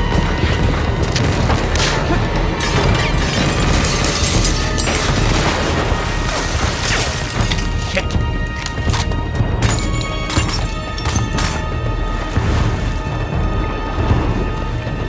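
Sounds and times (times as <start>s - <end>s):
action film score music: 0.0s - 15.0s
glass smashing: 2.6s - 5.5s, 9.6s - 11.7s.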